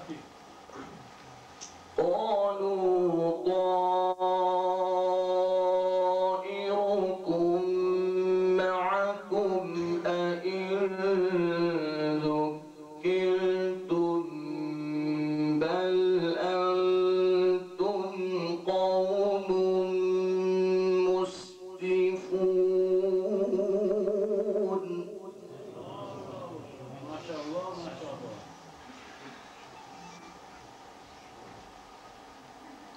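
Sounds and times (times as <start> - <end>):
man reciting melodically: 2.0 - 28.2.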